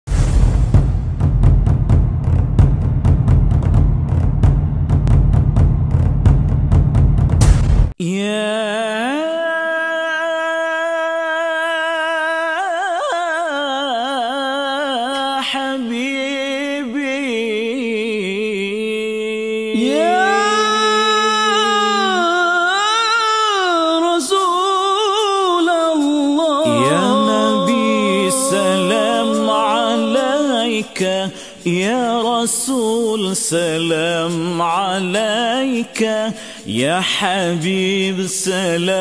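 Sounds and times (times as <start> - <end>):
solo voice singing wordlessly: 8.0 - 39.0.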